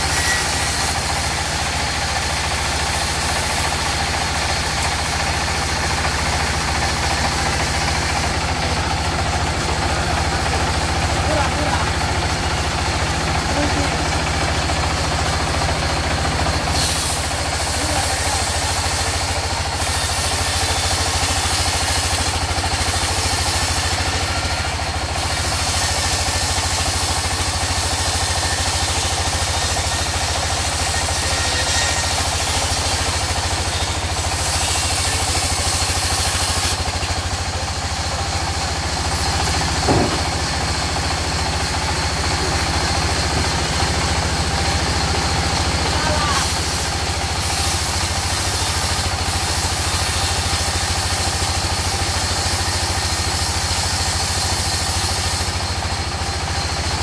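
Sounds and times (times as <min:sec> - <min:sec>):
band saw machine drone: 0:00.0 - 0:56.7
saw cutting through log: 0:00.0 - 0:57.0
sharp knock: 0:39.8 - 0:40.4.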